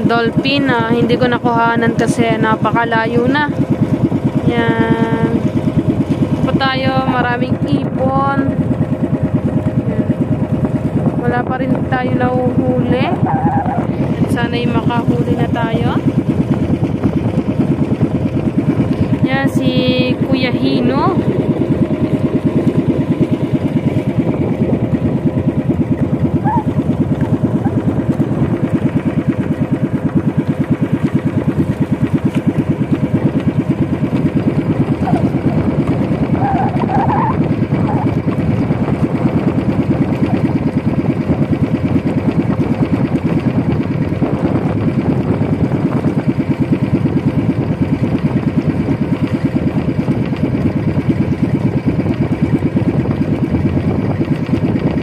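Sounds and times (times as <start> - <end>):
boat engine puttering: 0.0 - 55.0.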